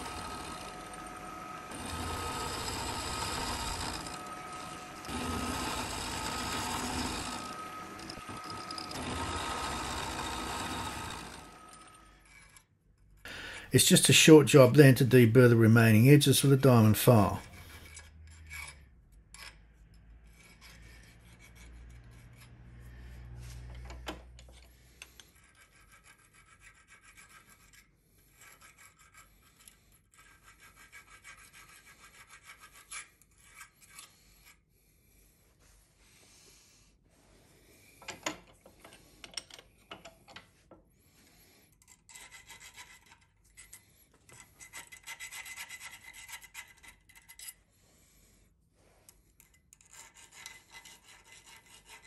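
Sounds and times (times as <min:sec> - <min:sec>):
file rasping on metal: 0:00.0 - 0:12.7, 0:17.4 - 0:22.9, 0:24.6 - 0:34.7, 0:41.2 - 0:47.6, 0:49.4 - 0:52.0.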